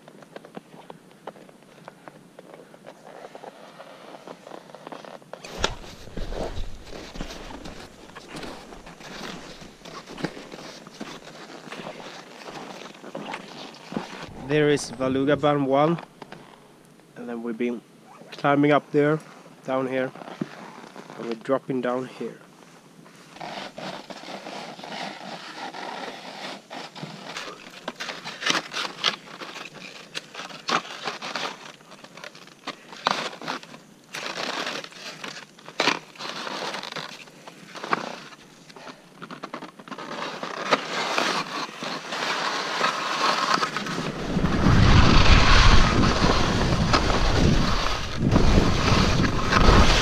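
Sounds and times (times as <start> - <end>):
knocks of ski edges and poles: 0.0 - 16.5, 23.1 - 50.0
skis scraping on icy snow: 2.9 - 16.0, 23.1 - 50.0
wind rushing on microphone: 43.9 - 50.0.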